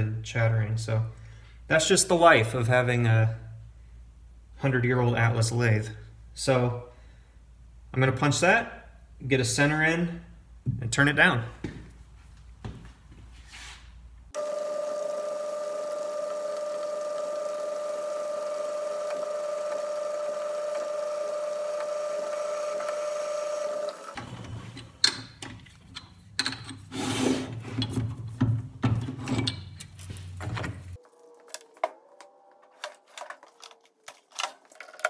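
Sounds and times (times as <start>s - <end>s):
metal lathe whining: 14.4s - 24.3s.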